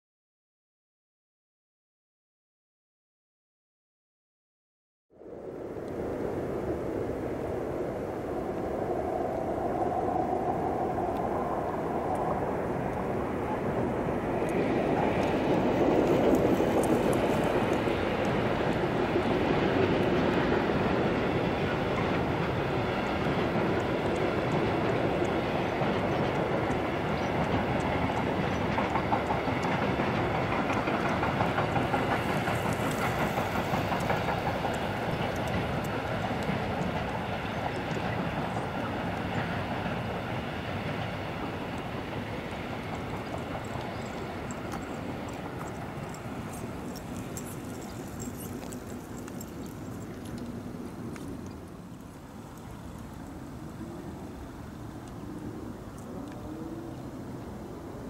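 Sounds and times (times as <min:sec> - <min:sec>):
diesel locomotive passing: 0:05.2 - 0:58.0
wagons rolling over rails: 0:12.7 - 0:54.3.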